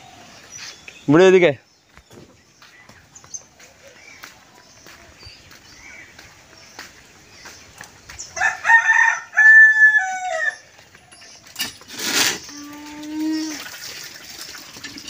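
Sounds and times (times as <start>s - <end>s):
rooster crowing: 8.4s - 10.7s.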